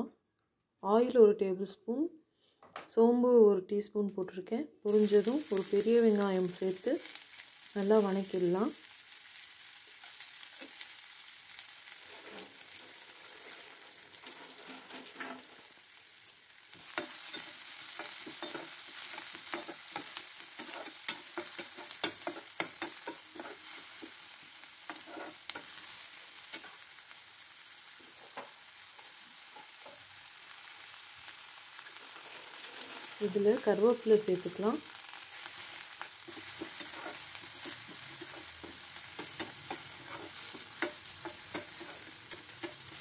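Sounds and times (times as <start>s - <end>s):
onion sizzling in frying pan: 4.9s - 43.0s
metal spatula scraping pan: 11.9s - 15.7s, 16.8s - 26.8s, 35.5s - 43.0s.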